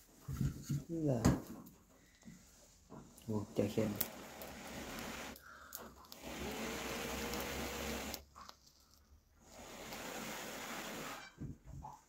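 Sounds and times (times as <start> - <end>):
person blowing breathily: 5.3 - 6.0.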